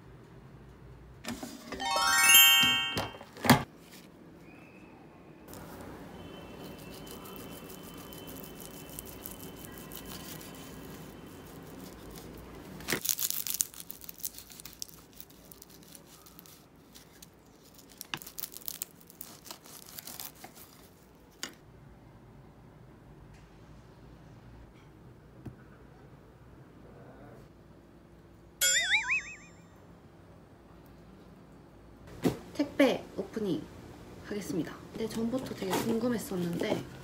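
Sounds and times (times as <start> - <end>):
packaging ripping: 11.9 - 20.9.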